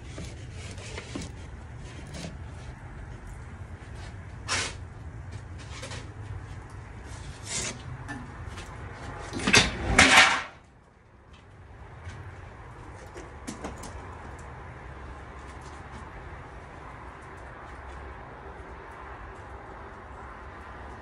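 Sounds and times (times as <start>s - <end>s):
metal scraping on metal table: 7.1s - 8.2s, 9.3s - 10.6s.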